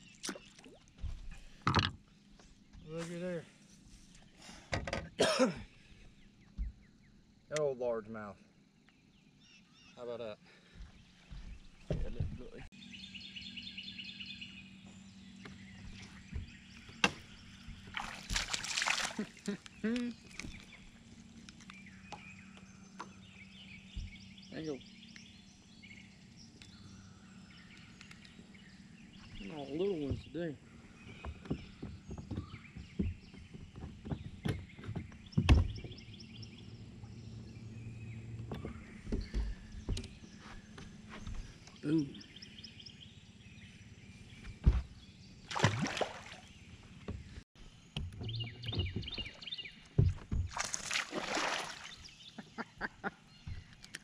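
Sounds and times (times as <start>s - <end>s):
birds chirping: 0.0s - 54.0s
knocking and clatter on boat deck: 1.1s - 2.0s, 4.7s - 5.2s, 10.8s - 12.6s, 31.0s - 36.1s, 38.4s - 41.4s, 47.0s - 50.6s.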